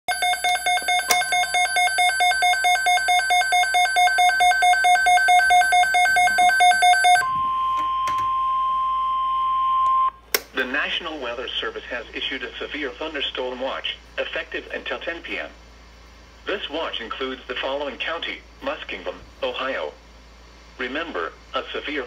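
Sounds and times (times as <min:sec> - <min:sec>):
steady single-pitch alarm tone: 0:00.1 - 0:10.2
warbling electronic alarm tone: 0:00.1 - 0:10.2.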